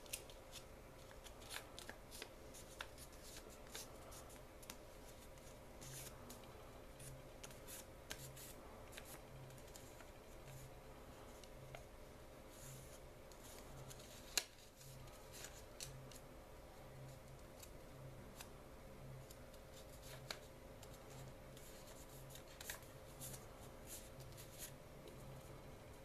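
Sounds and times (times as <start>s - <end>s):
paper crinkling while folded: 0.0s - 10.7s, 12.5s - 16.2s, 19.2s - 24.8s.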